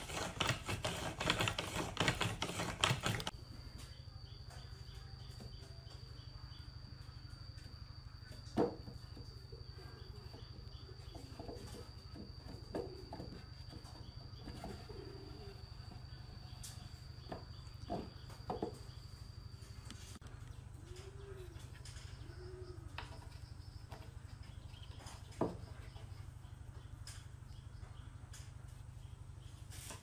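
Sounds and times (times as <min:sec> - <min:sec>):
dove cooing: 0:14.6 - 0:15.8, 0:20.7 - 0:23.3.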